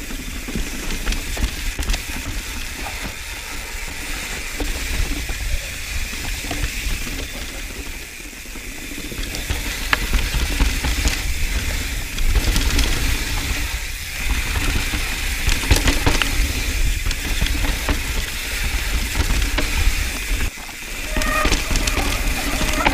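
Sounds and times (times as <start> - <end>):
bike rattling over bumps: 0.0 - 22.9
bike tyres rumbling over dirt: 0.0 - 22.9.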